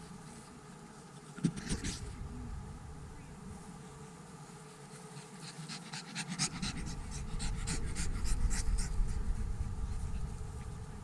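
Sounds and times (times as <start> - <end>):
dog panting rapidly: 5.3 - 10.1
low rumble: 6.6 - 11.0.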